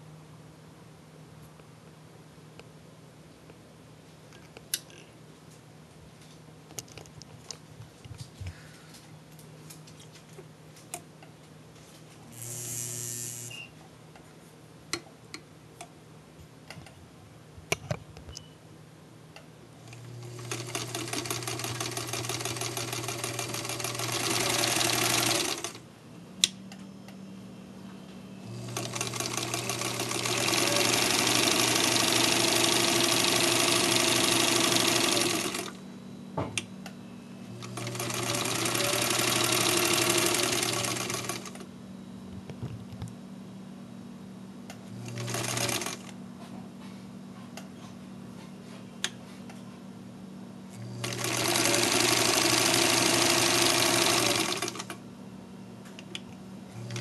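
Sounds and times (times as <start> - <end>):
sewing machine stitching: 20.0 - 25.8, 28.5 - 35.8, 37.6 - 41.6, 45.0 - 46.1, 50.9 - 55.0.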